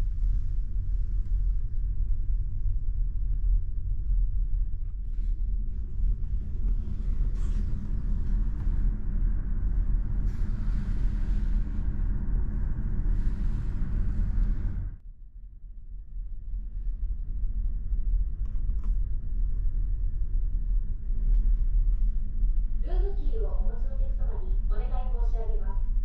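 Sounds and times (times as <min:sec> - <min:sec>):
ship engines rumbling: 0:06.3 - 0:15.0.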